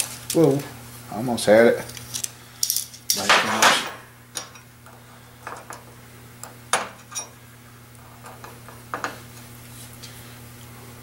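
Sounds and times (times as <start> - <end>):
steady low hum: 0.0 - 11.0
metal parts clinking on workbench: 2.6 - 4.6.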